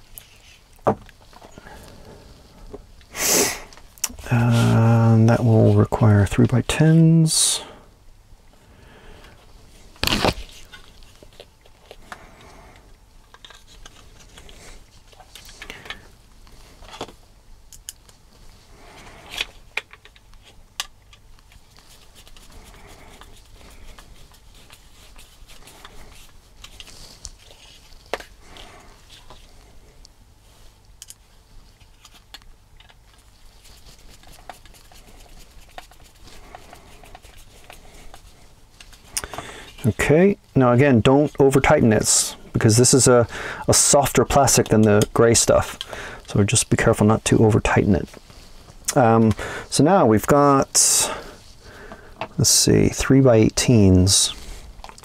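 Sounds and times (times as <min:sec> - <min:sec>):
plastic parts clicking and rattling: 0:13.2 - 0:16.0, 0:19.2 - 0:21.6.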